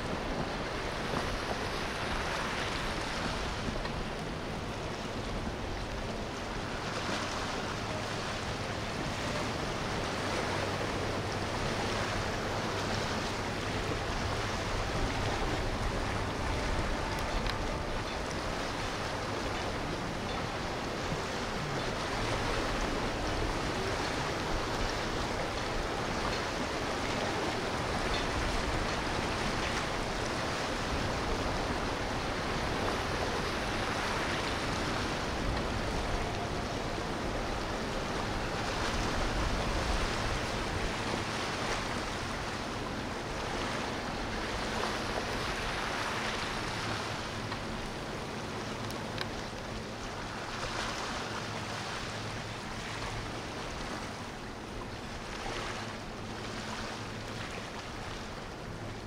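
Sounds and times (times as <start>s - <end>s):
boat wake rushing water: 0.0s - 59.0s
low boat engine rumble: 0.0s - 59.0s.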